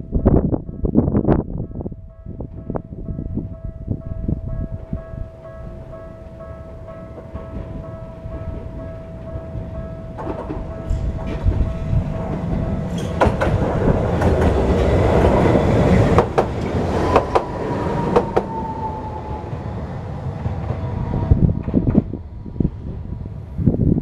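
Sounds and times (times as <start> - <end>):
tram passing: 0.0 - 24.0
wheels clacking over rail joints: 7.1 - 19.6
high whine sliding down: 10.7 - 23.2.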